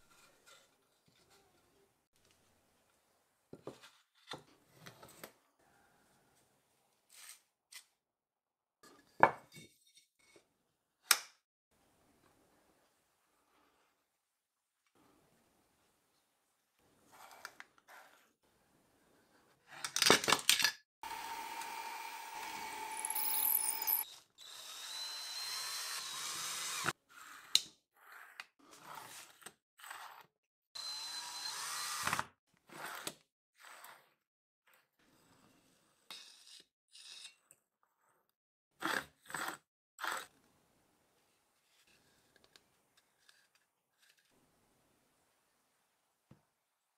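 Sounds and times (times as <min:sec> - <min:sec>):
drill press boring into plywood: 0:21.0 - 0:26.9, 0:30.8 - 0:32.3.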